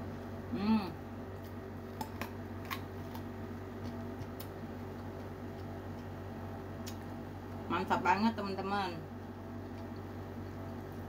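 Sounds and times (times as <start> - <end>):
steady low hum: 0.0 - 11.0
quiet chewing: 1.4 - 7.2, 9.6 - 11.0.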